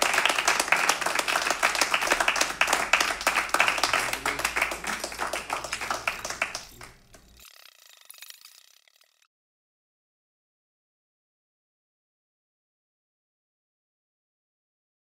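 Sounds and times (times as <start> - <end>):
audience applauding: 0.0 - 7.3.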